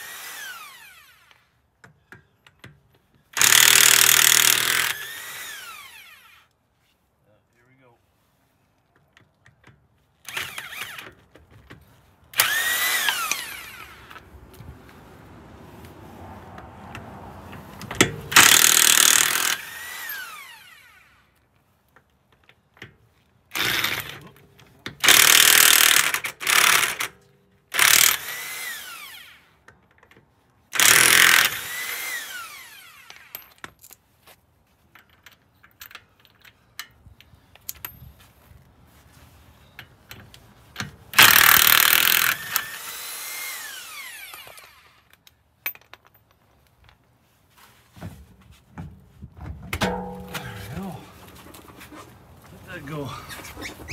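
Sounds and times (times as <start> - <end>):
impact wrench hammering: 49.8 - 50.7.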